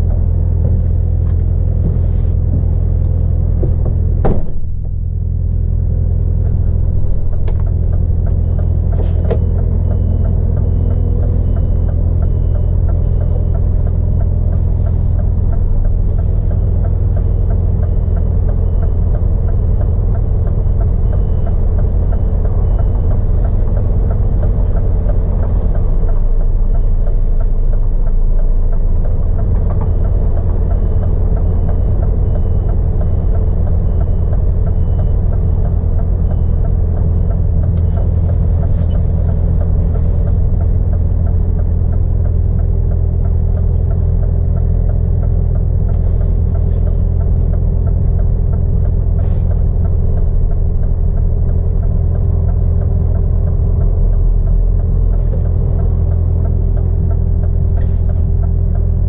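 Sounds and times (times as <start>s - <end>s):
lorry diesel engine droning: 0.0s - 59.0s
road noise: 0.0s - 59.0s.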